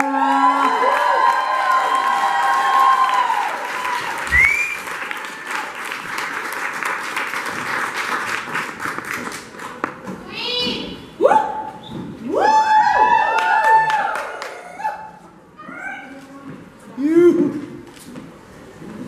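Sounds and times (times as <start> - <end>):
audience applauding: 0.0 - 9.8, 13.1 - 14.9
rising whoop: 12.3 - 15.1.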